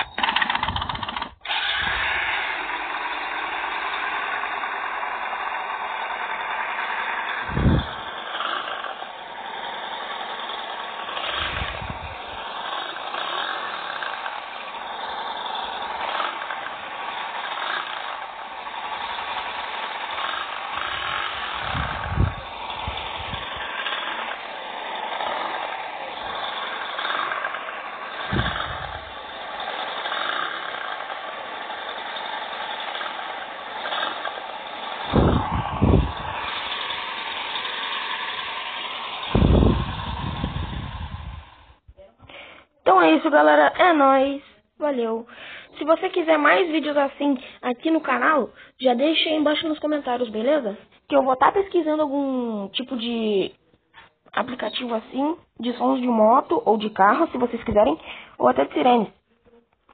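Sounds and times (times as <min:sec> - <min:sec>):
motorcycle engine running: 0:00.0 - 0:41.8.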